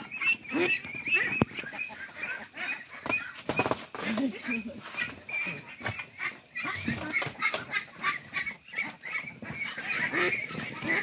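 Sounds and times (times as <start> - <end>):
ducks quacking: 0.0 - 11.0
handling knocks and rustles: 1.4 - 6.0.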